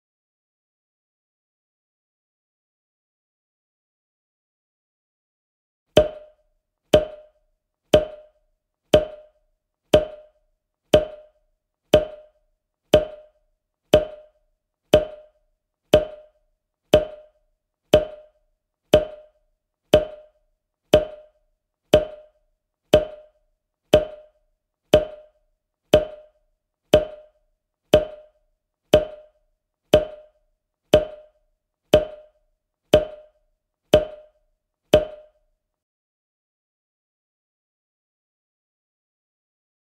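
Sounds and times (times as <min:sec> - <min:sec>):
wood-block-like ticking: 0:06.0 - 0:06.4, 0:07.0 - 0:07.4, 0:08.0 - 0:08.4, 0:09.0 - 0:09.4, 0:10.0 - 0:10.4, 0:11.0 - 0:11.4, 0:12.0 - 0:12.4, 0:13.0 - 0:34.4, 0:35.0 - 0:35.4.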